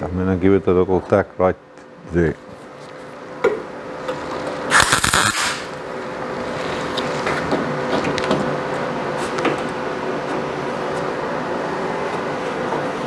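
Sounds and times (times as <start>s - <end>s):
steady hum: 0.0s - 13.0s
welding arc crackling: 4.7s - 5.8s.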